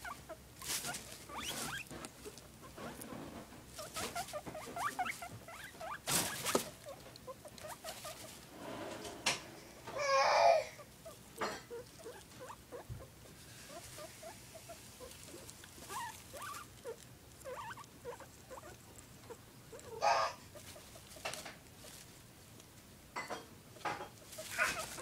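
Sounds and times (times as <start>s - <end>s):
guinea pig chewing: 0.0s - 9.0s, 10.8s - 23.1s, 23.7s - 25.0s
hay rustling: 0.6s - 1.9s, 24.2s - 25.0s.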